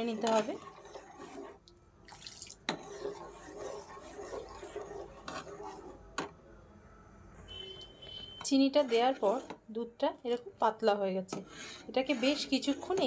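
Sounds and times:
ladle scraping in pan: 0.0s - 1.6s, 2.2s - 6.0s, 8.6s - 9.6s, 11.3s - 13.0s.

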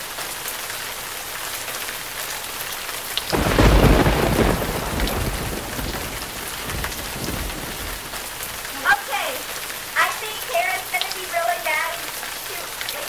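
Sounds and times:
rain hiss: 0.0s - 13.0s
thunderclap rumbling: 3.3s - 9.5s.

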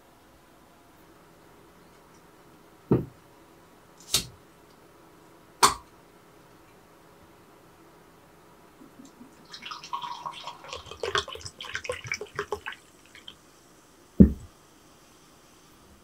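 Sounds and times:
fizzy drink pouring into glass: 9.4s - 13.4s.

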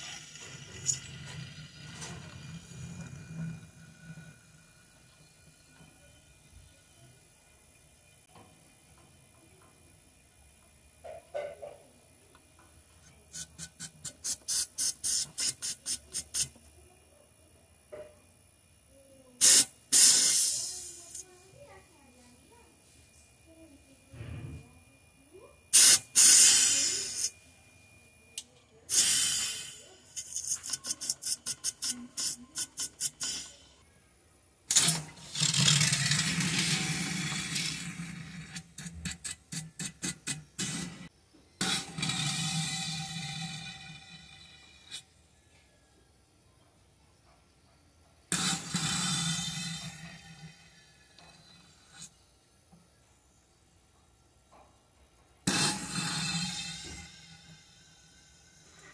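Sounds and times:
pressurised gas hissing spurts: 13.3s - 16.6s, 19.4s - 21.3s, 25.7s - 27.3s, 28.9s - 33.8s, 48.3s - 50.8s, 55.5s - 58.9s
sputtering spurts of liquid: 19.4s - 21.2s, 25.7s - 27.3s.

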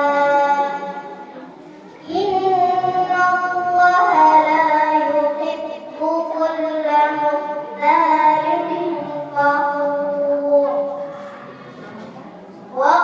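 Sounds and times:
person chanting melodically: 2.0s - 11.8s.

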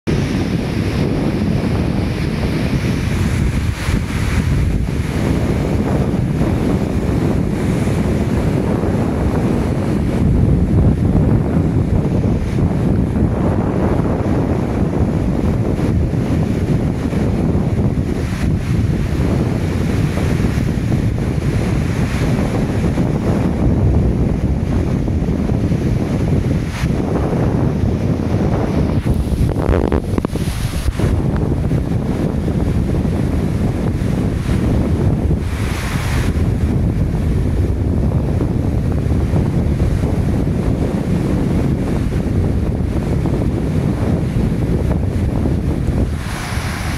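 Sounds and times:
wind buffeting microphone: 0.0s - 46.9s
roar of rushing water: 0.1s - 46.9s
rushing falling water: 24.2s - 37.3s, 44.9s - 46.9s.

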